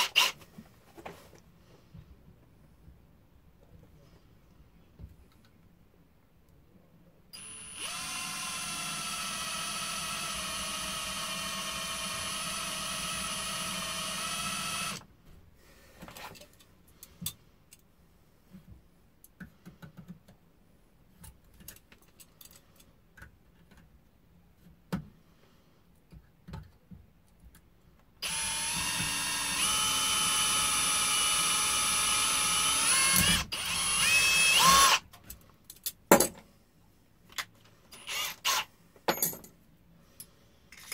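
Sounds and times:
power drill whining: 0.0s - 0.4s, 7.4s - 15.0s, 28.2s - 35.0s, 38.0s - 38.7s.

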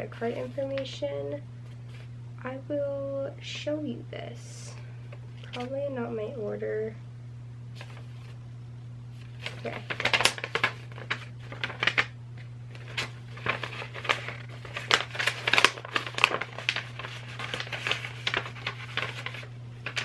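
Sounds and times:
steady low hum: 0.0s - 20.0s
paper crinkling and rustling: 0.2s - 0.9s, 7.8s - 8.4s, 9.1s - 20.0s.

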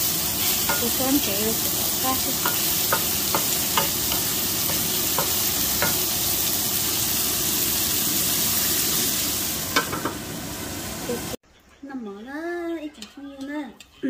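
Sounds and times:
beans sizzling in hot oil: 0.0s - 11.4s
wooden spatula tapping pan: 2.4s - 6.0s.

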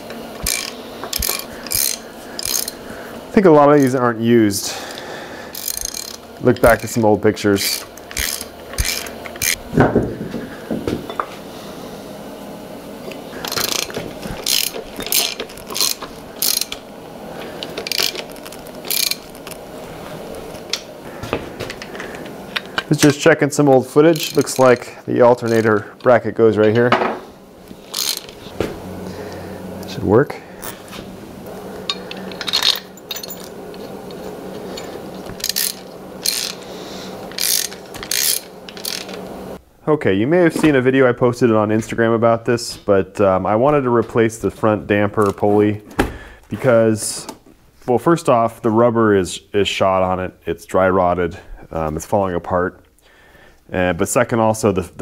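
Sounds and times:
socket ratchet clicking: 0.4s - 2.8s, 5.5s - 6.9s, 7.6s - 9.6s, 13.4s - 16.8s, 17.6s - 19.6s, 27.9s - 28.4s, 34.8s - 36.6s, 37.3s - 39.2s.

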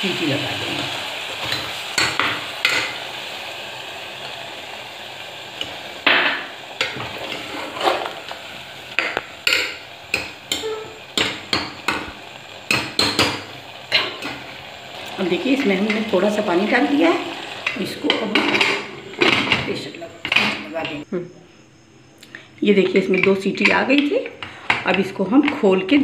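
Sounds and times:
soft sizzle: 0.0s - 21.2s, 21.8s - 26.0s
ladle knocking and scraping pot: 6.1s - 8.4s, 17.6s - 21.0s.

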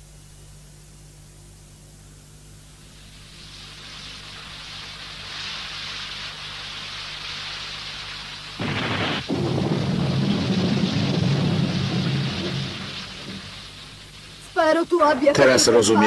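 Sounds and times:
heavy rain: 3.8s - 14.9s
loud thunder crash: 8.6s - 14.2s.

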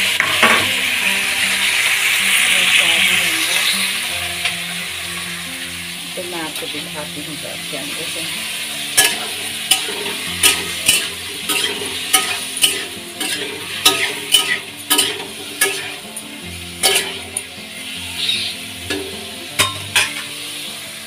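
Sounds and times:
potatoes sizzling: 0.0s - 21.0s
metal spatula scraping wok: 8.4s - 20.4s.

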